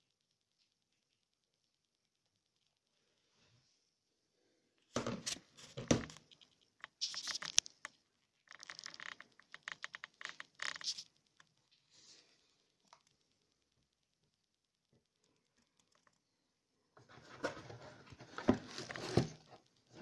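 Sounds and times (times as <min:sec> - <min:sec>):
packaging crackling: 0:06.8 - 0:11.5
packaging crinkling and rustling: 0:17.2 - 0:20.0.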